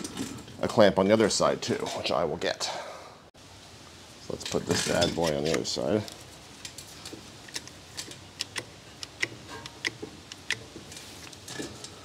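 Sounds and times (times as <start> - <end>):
metallic clicks and taps of tools: 5.2 - 12.0.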